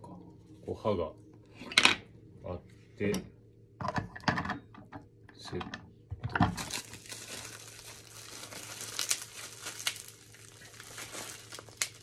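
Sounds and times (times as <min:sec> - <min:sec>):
plastic bag crinkling: 0:06.6 - 0:12.0.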